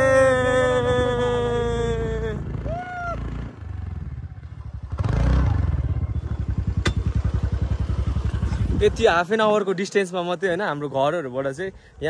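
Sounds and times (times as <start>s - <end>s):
motorcycle engine running: 2.0s - 9.1s.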